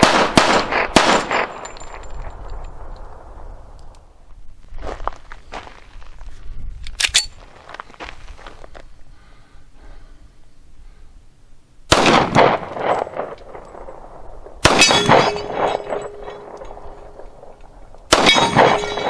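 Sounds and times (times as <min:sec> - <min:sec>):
pistol shots echoing: 0:00.0 - 0:02.1, 0:11.9 - 0:19.0
steel target ringing: 0:14.7 - 0:17.2, 0:18.1 - 0:19.0.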